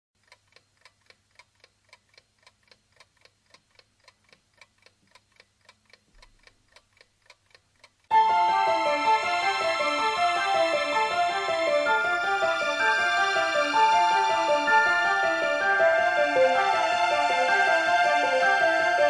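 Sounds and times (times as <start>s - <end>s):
rapid clock-like ticking: 0.2s - 8.2s
music: 8.1s - 19.0s.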